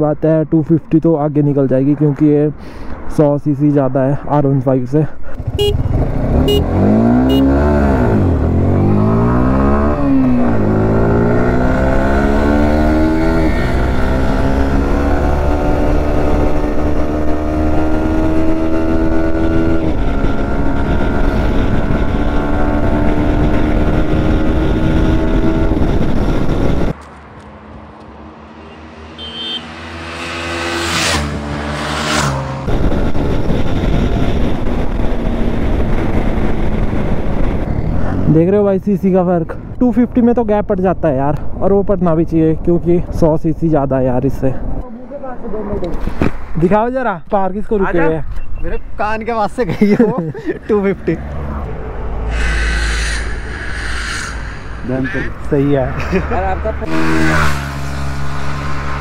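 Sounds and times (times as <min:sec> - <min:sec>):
motorcycles accelerating hard: 0:05.3 - 0:27.0, 0:27.6 - 0:38.6, 0:49.7 - 0:59.0
motorcycle passing by: 0:05.4 - 0:38.5, 0:50.7 - 0:59.0.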